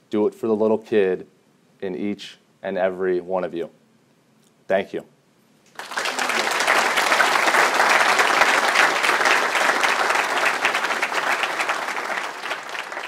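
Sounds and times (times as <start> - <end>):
audience applauding: 5.7 - 13.0.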